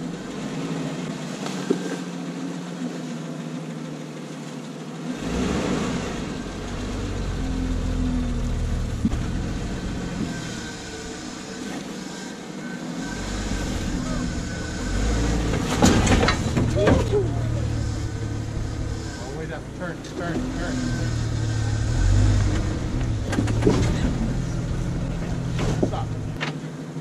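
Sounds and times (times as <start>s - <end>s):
engine running at low revs: 0.0s - 27.0s
deep rumble: 13.6s - 26.4s.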